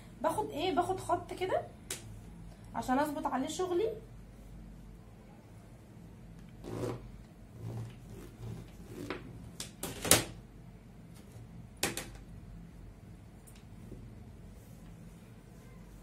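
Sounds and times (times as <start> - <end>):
ruler scraping on fabric: 6.6 - 9.2.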